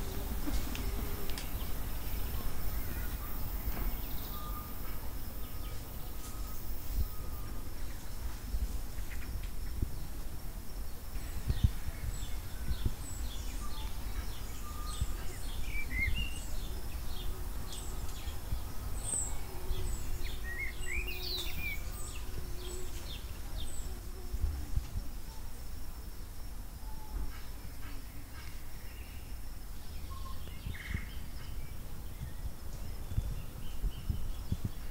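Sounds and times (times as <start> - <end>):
birds chirping and whistling: 0.0 - 9.3, 11.0 - 24.0.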